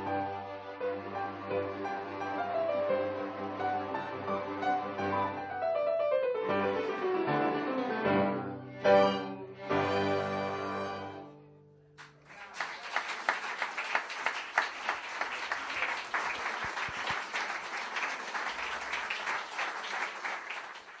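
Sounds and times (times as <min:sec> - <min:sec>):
string orchestra chord: 0:06.4 - 0:11.5
audience applause: 0:12.0 - 0:21.0.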